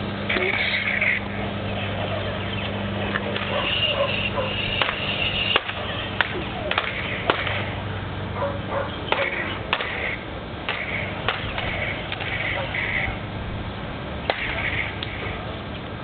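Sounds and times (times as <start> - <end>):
plastic toy blades clacking: 4.6 - 7.7, 9.1 - 10.1, 10.7 - 12.5, 14.3 - 15.2.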